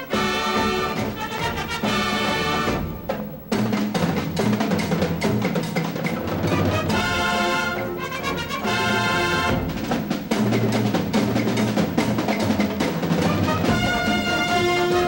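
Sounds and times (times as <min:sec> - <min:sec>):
brass chords: 0:00.0 - 0:03.5, 0:06.4 - 0:10.0, 0:13.1 - 0:15.0
drums: 0:00.0 - 0:15.0.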